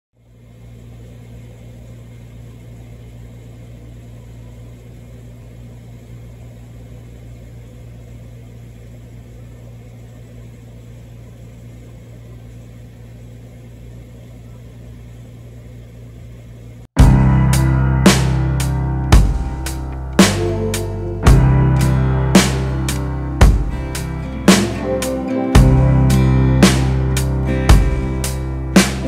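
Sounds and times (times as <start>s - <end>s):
aquarium pump humming: 0.2s - 29.0s.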